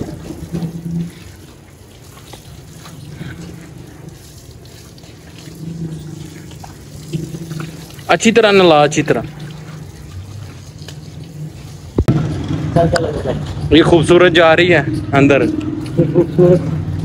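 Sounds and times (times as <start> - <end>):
hose water spraying and splashing: 0.0 - 12.5.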